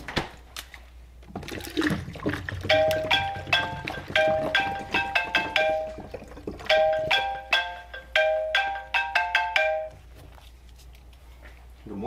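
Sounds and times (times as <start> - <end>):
smartphone ringtone: 6.7 - 10.0.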